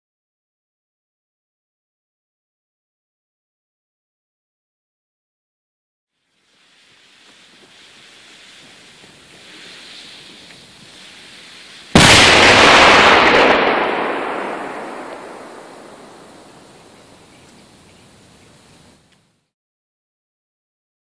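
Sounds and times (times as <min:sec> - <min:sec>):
fuse hissing: 0:06.2 - 0:12.0
firecracker loud bang: 0:11.7 - 0:17.0
blast rumble: 0:11.9 - 0:17.3.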